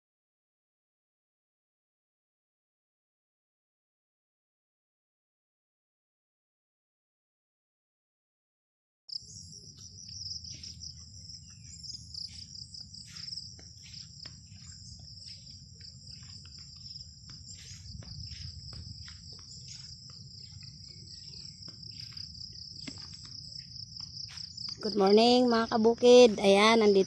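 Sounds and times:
insects trilling: 0:09.1 - 0:27.0
footsteps rustling through grass: 0:09.4 - 0:27.0.

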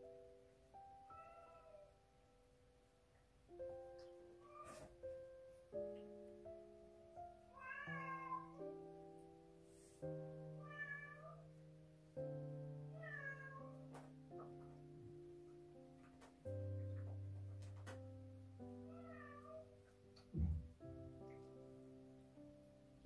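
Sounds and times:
soft piano music: 0:00.0 - 0:23.0
cat meowing: 0:01.1 - 0:01.9, 0:04.4 - 0:04.9, 0:07.5 - 0:08.6, 0:10.6 - 0:11.4, 0:12.9 - 0:13.8, 0:18.9 - 0:19.7.

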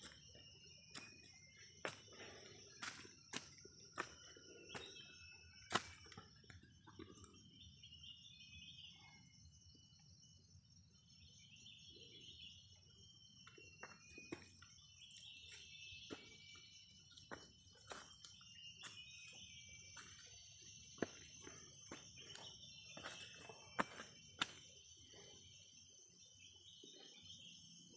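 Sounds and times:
high-pitched insect chorus: 0:00.0 - 0:27.9.

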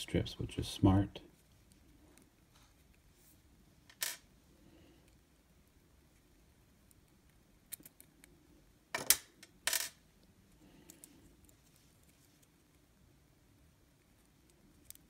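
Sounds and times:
small plastic parts clicking: 0:06.8 - 0:08.3.

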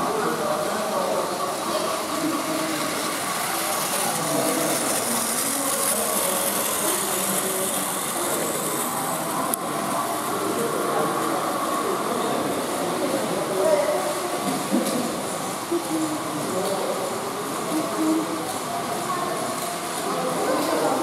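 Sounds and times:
indistinct voices: 0:00.0 - 0:21.0
toy trains whirring: 0:00.0 - 0:21.0.

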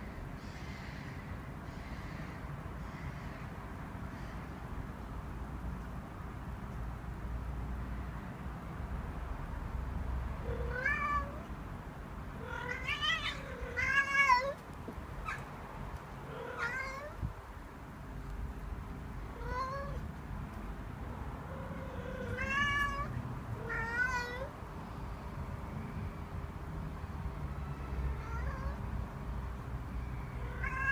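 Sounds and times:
cat trilling and meowing: 0:10.4 - 0:11.5, 0:12.4 - 0:14.6, 0:16.2 - 0:17.3, 0:19.3 - 0:20.0, 0:21.4 - 0:24.5, 0:27.8 - 0:28.8, 0:30.4 - 0:30.9.

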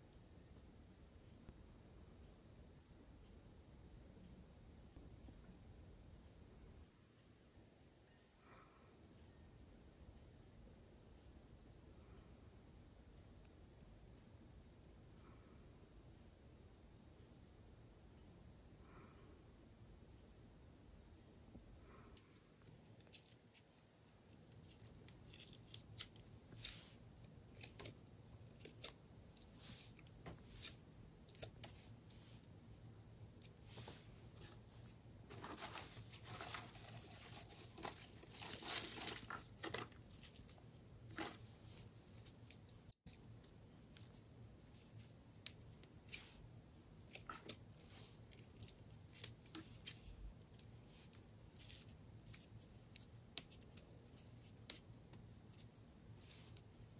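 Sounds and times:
dry stems rustling: 0:22.2 - 0:32.5, 0:33.5 - 0:46.3, 0:46.9 - 0:56.9.

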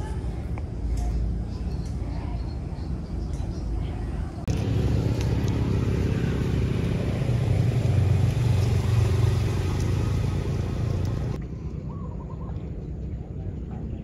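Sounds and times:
motor engine humming: 0:04.3 - 0:11.8.

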